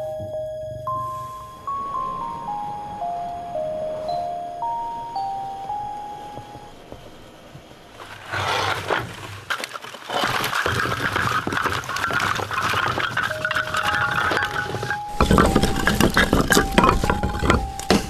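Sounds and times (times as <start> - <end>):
mesh bag rustling and scraping: 8.0 - 17.9
wood pieces knocking together: 8.7 - 18.0.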